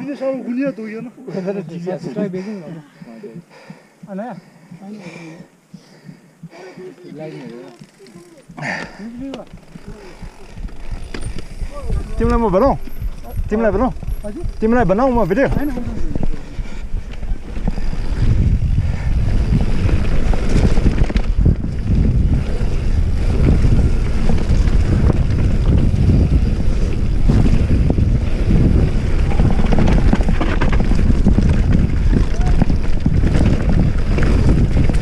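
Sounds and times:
mountain bike rattling on trail: 0:05.9 - 0:35.0
wind buffeting microphone: 0:08.4 - 0:35.0.

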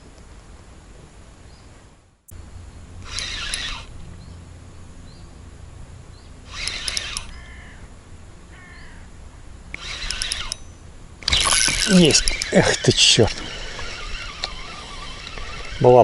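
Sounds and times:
fishing reel clicking: 0:03.0 - 0:04.0, 0:06.4 - 0:07.8, 0:09.7 - 0:16.0
crow cawing: 0:07.3 - 0:07.9, 0:08.5 - 0:09.1.

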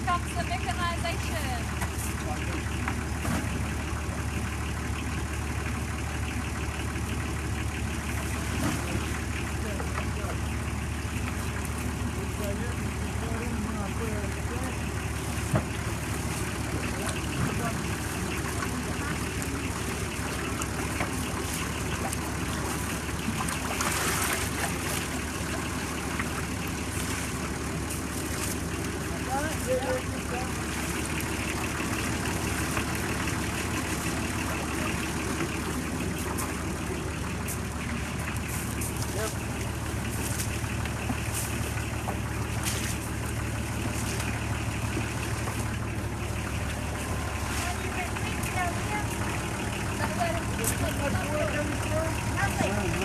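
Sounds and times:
machinery engine running: 0:00.0 - 0:53.0.

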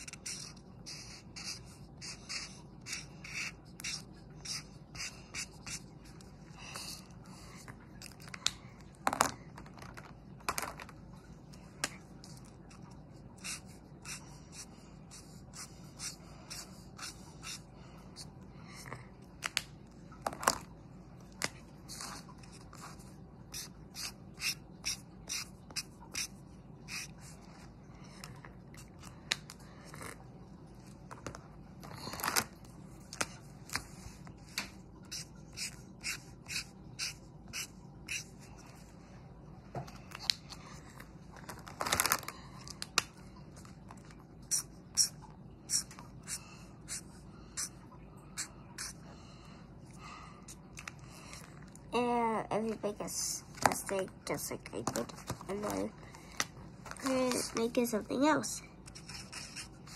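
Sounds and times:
marker drawing on paper: 0:00.0 - 0:07.7, 0:12.3 - 0:18.3, 0:21.8 - 0:27.6, 0:33.7 - 0:38.6, 0:44.5 - 0:47.8, 0:48.4 - 0:49.0, 0:57.0 - 0:59.9.

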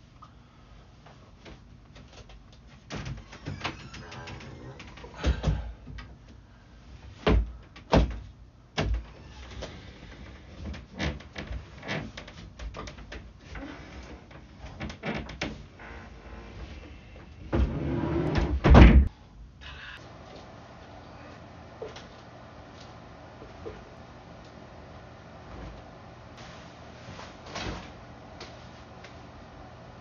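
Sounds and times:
metal bed frame knocks and clunks: 0:17.5 - 0:19.1
cabinet shutting with hard knock: 0:17.6 - 0:19.1.

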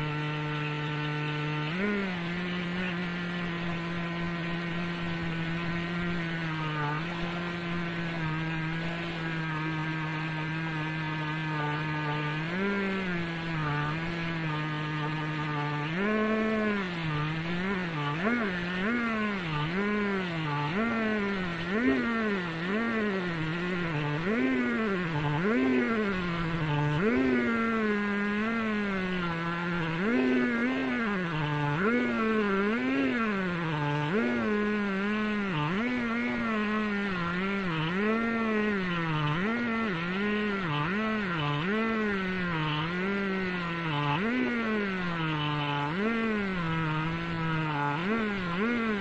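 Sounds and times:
chainsaw cutting wood: 0:00.0 - 0:49.0.

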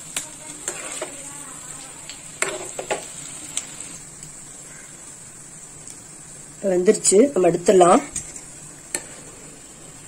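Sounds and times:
fritters sizzling in hot oil: 0:00.0 - 0:10.0
metal ladle scraping a pan: 0:00.6 - 0:01.2.

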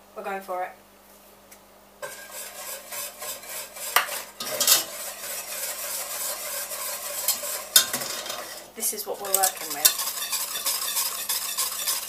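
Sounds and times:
whisk knocking on pan: 0:02.0 - 0:08.5, 0:09.2 - 0:12.0
wire whisk scraping saucepan: 0:02.0 - 0:12.0.

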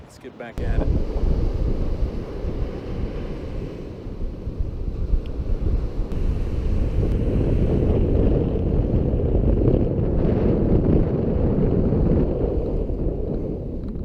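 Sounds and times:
surf breaking on shore: 0:00.0 - 0:12.6
wind buffeting microphone: 0:00.0 - 0:14.0.

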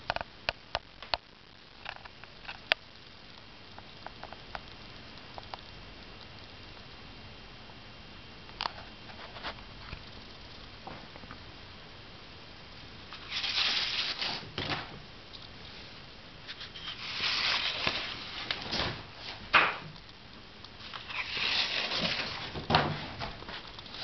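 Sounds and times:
rustling: 0:13.1 - 0:24.0.

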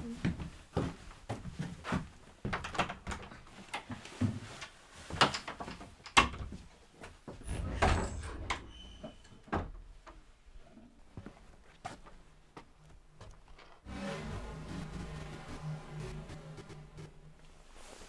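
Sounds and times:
footsteps on wooden floorboards: 0:00.1 - 0:05.2
wooden door opening and shutting: 0:07.4 - 0:10.0.

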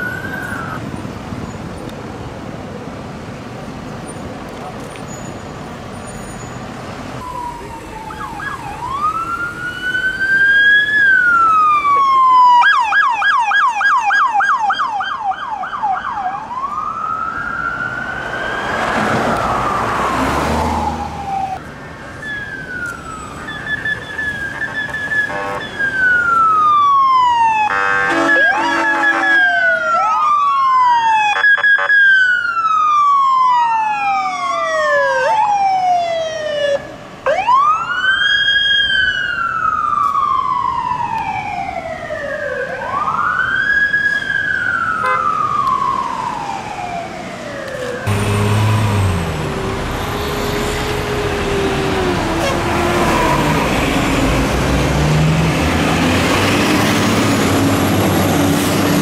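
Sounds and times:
electronic sirens wailing and yelping: 0:07.2 - 0:21.6, 0:22.2 - 0:54.0
vehicle horn blasts: 0:25.3 - 0:25.7, 0:27.7 - 0:29.5, 0:52.4 - 0:52.8.

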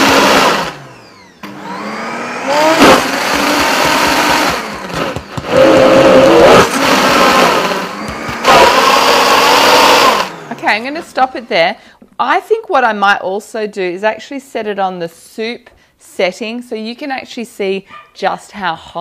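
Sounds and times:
blender motor ramping: 0:00.0 - 0:11.0.

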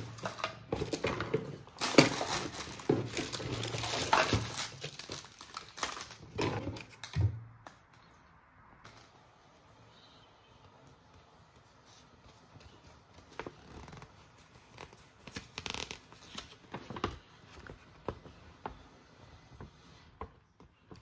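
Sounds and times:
packaging clicks and rustles: 0:00.0 - 0:08.1, 0:12.6 - 0:18.4.

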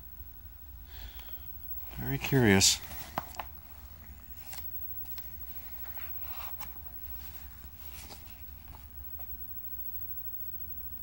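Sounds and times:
low hum: 0:00.0 - 0:11.0
paper pages rustling: 0:02.1 - 0:09.3.

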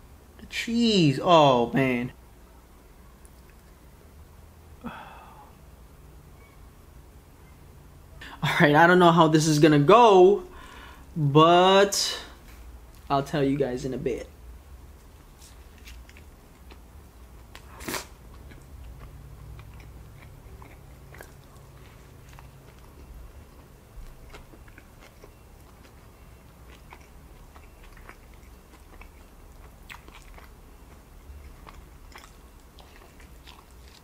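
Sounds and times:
chewing with mouth clicks: 0:03.2 - 0:03.8, 0:15.0 - 0:34.0
crunchy bite into sandwich: 0:17.6 - 0:23.0.

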